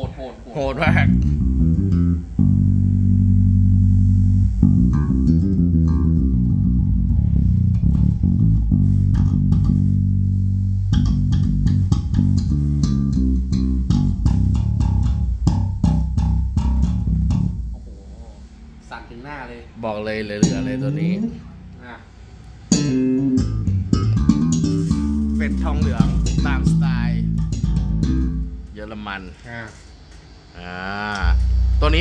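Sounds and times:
electric bass notes: 0.0 - 29.3, 30.0 - 32.0.

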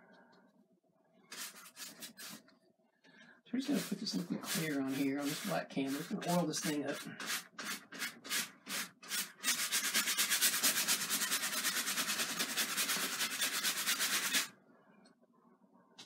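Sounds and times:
paintbrush scrubbing on canvas: 1.3 - 2.4, 3.6 - 14.5.

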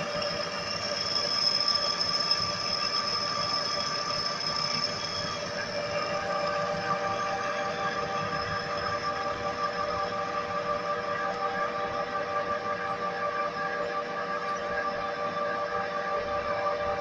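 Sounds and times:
lathe running noise: 0.0 - 12.2
metal lathe cutting whine: 0.0 - 17.0.

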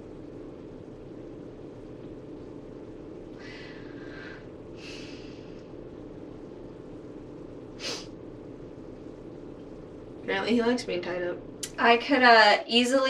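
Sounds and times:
steady low hum: 0.0 - 13.0
person breathing close to microphone: 3.4 - 5.6, 7.8 - 8.1
sharp nasal breath: 7.8 - 8.1.

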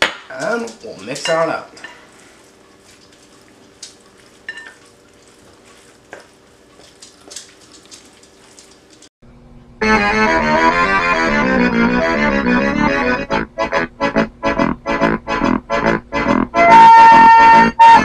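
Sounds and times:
fork scraping glass bowl: 1.3 - 5.9
piano-led music: 9.8 - 14.2.

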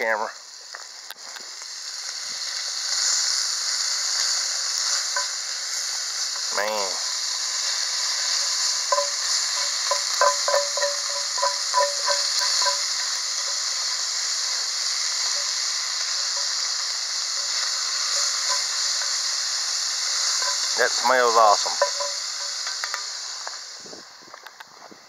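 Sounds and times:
bacon sizzling: 0.0 - 24.7
spatula knocking on pot: 8.9 - 13.0.

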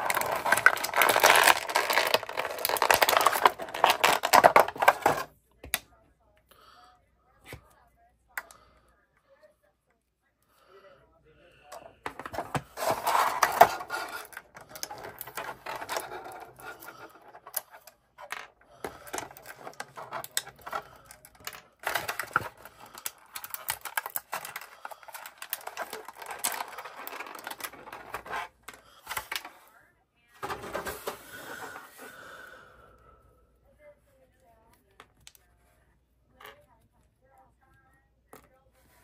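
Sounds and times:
plastic packaging crinkling: 0.0 - 5.3, 12.2 - 17.7, 18.7 - 29.5.

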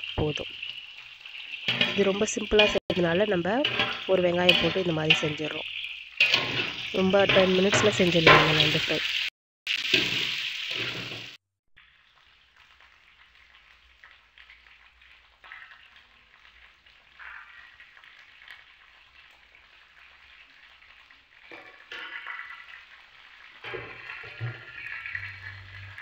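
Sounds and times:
onions sizzling in hot oil: 0.0 - 26.0
steel spoon stirring and scraping: 0.6 - 8.4.

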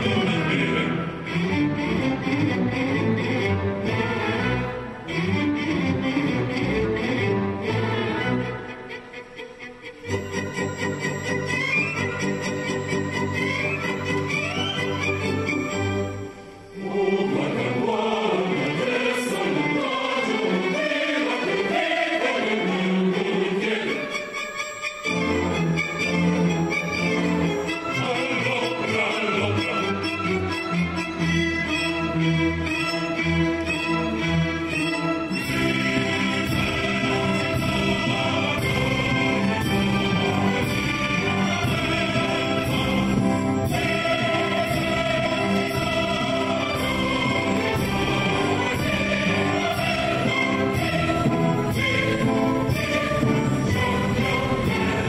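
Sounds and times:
mixed choir singing: 0.0 - 9.2, 15.6 - 25.6, 26.5 - 30.4, 35.3 - 55.0
symphony orchestra: 0.0 - 55.0.

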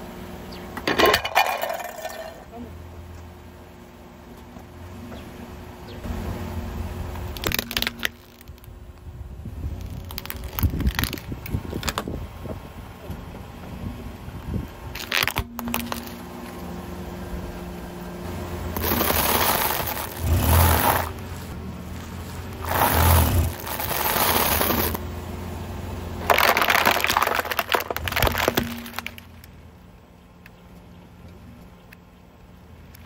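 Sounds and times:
tyre crunching brittle objects: 7.1 - 9.0, 9.7 - 12.2, 14.9 - 16.5, 18.7 - 25.0, 26.2 - 29.6
plastic cracking under tyre: 7.1 - 9.1, 9.7 - 12.2, 14.9 - 16.2, 18.8 - 25.0, 26.2 - 29.6.

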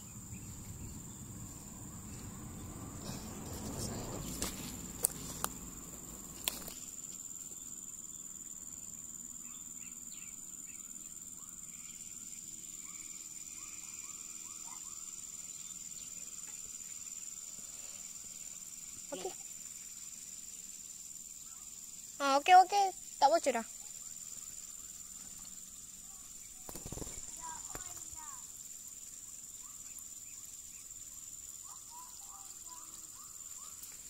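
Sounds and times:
crickets chirping drone: 0.0 - 34.0
handling rustle: 3.1 - 7.2.

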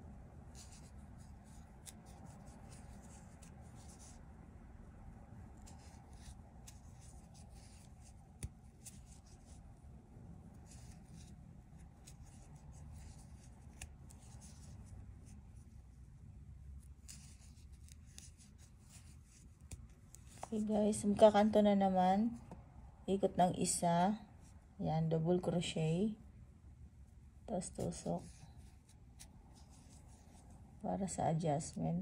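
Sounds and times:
low room noise: 0.0 - 32.0
yarn rustling: 0.4 - 4.4, 5.4 - 22.0, 27.5 - 31.7.

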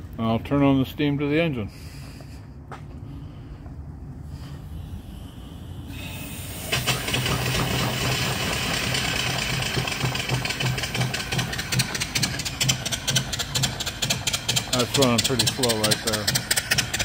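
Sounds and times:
steam hissing: 4.7 - 14.8
steam engine chuffing: 4.9 - 17.0.

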